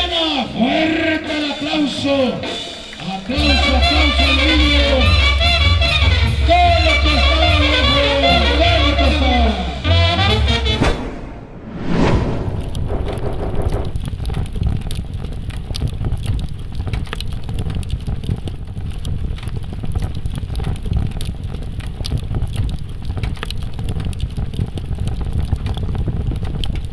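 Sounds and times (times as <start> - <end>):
low rumble: 10.7 - 15.6
crackles and clicks: 11.7 - 26.9.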